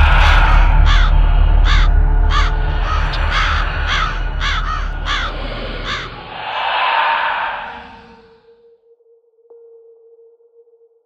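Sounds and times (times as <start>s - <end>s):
crow cawing: 0.0s - 8.4s
deep rumbling drone: 0.0s - 8.5s.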